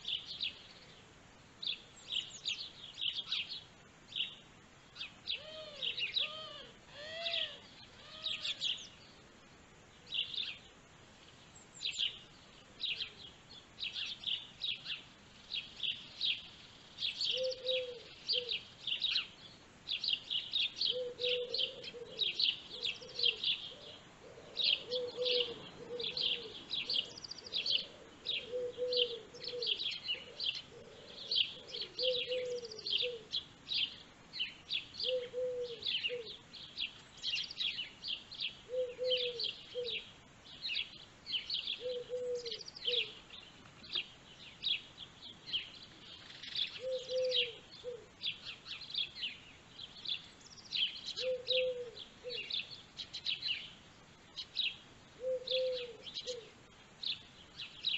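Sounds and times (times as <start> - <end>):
small birds chirping: 0.0 - 57.9.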